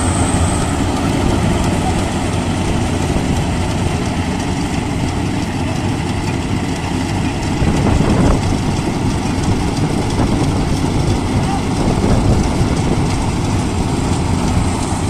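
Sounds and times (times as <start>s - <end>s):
combine harvester engine running: 0.0s - 15.0s.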